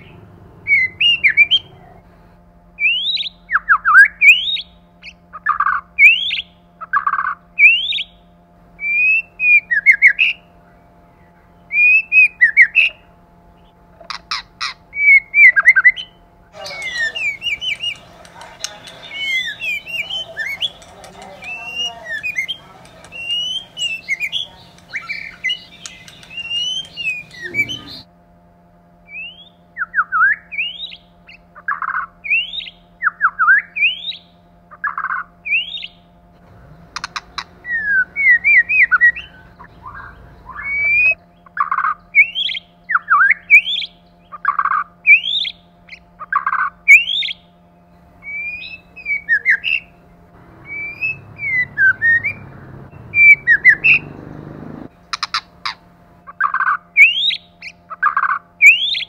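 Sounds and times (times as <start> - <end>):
bird singing whistled notes: 2.8 - 5.2, 6.0 - 8.2, 8.8 - 10.4, 11.6 - 13.0, 14.9 - 28.1, 29.1 - 34.4, 35.4 - 36.1, 37.0 - 50.0, 50.6 - 54.5, 56.4 - 59.0.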